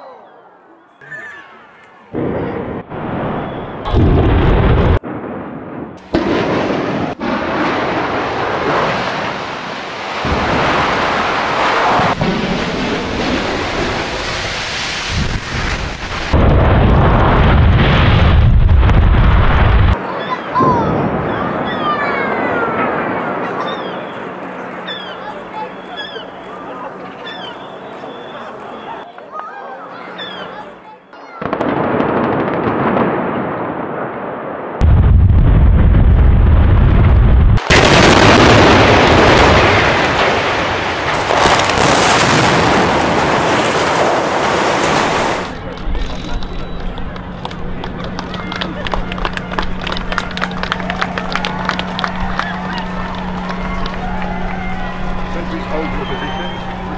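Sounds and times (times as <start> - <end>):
demolition charges crackling: 1.9 - 29.0, 30.5 - 56.9
chimney collapsing rumble: 2.2 - 20.0, 34.8 - 56.9.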